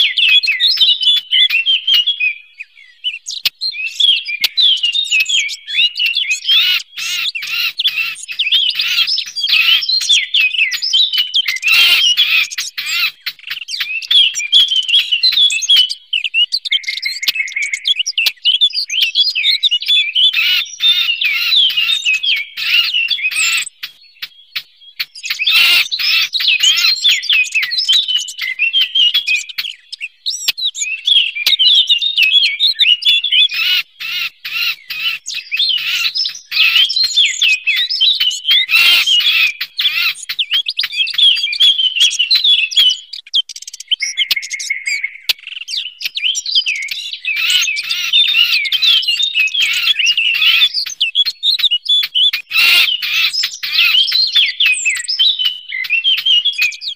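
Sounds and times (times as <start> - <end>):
bird warbling: 5.1 - 15.9, 20.3 - 30.5, 33.5 - 45.9, 46.6 - 56.9.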